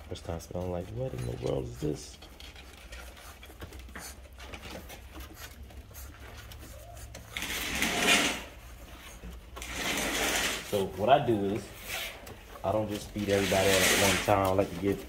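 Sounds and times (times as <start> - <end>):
puppies licking and smacking: 0.0 - 7.5.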